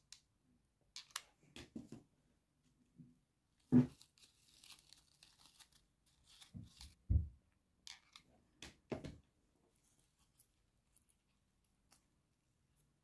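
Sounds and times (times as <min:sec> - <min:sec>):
ribbon rustling: 0:03.6 - 0:07.3.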